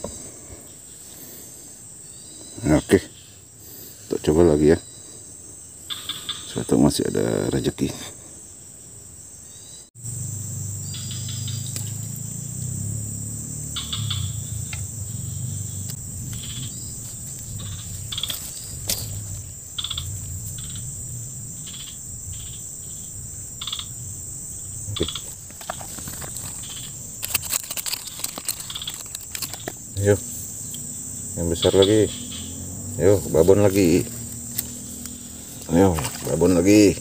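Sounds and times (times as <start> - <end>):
insects droning: 0.0 - 37.0
sharp clicks: 24.9 - 29.8.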